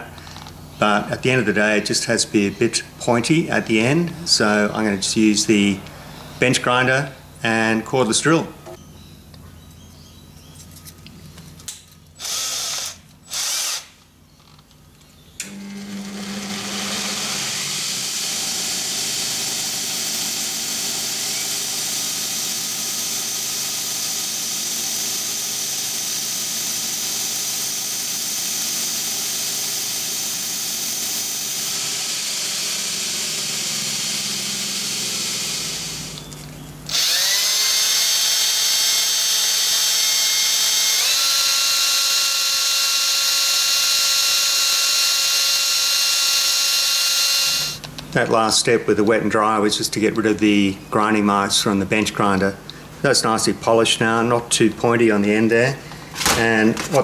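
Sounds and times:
cordless drill spinning: 12.2 - 14.6, 15.4 - 47.9.

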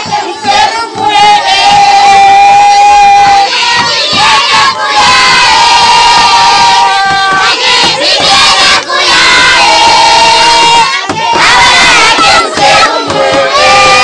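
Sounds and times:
crowd shouting and chanting: 0.0 - 14.0
long held cries: 1.3 - 3.6, 9.2 - 14.0.

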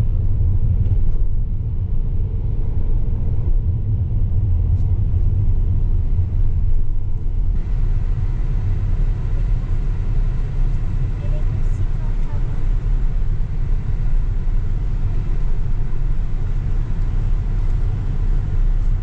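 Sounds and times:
car interior road rumble: 0.0 - 19.0.

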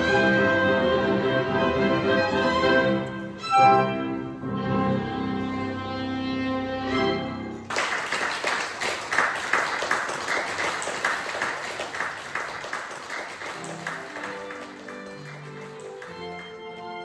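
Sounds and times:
string ensemble playing: 0.0 - 7.7, 12.1 - 17.0
audience applauding: 7.7 - 17.0.

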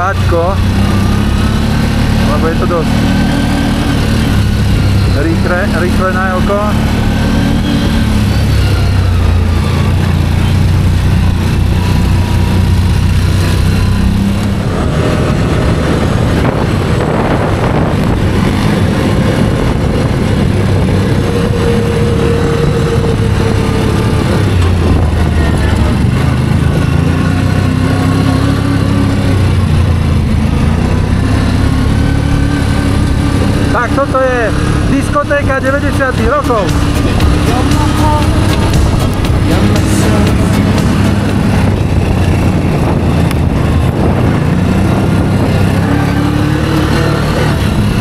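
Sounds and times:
atv engine running: 0.0 - 48.0
terrain noise: 0.0 - 48.0
wind rushing: 11.3 - 33.8, 34.4 - 48.0.

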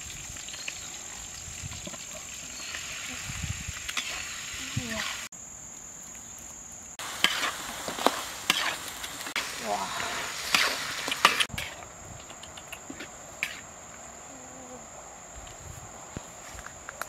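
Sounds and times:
meat sizzling in a wok: 0.0 - 5.3, 7.0 - 11.8.

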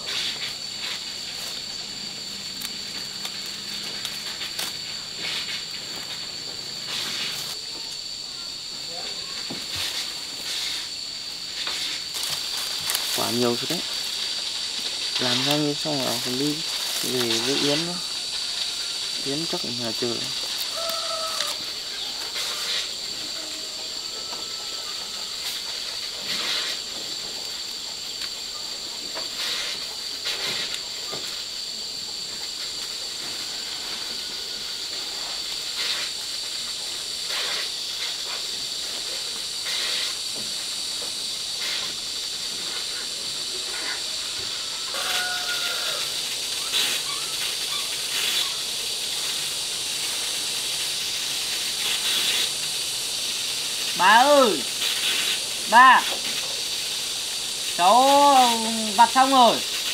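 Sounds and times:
steady high-pitched hiss: 0.0 - 59.9
leaves snapping and rustling: 2.4 - 7.6, 12.1 - 18.0, 19.3 - 21.7.

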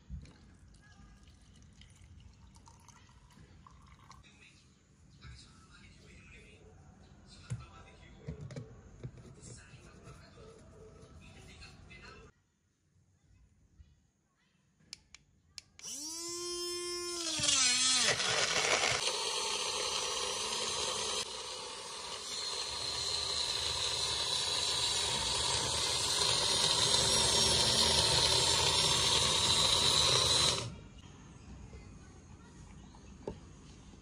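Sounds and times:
blender motor churning: 15.8 - 30.8.

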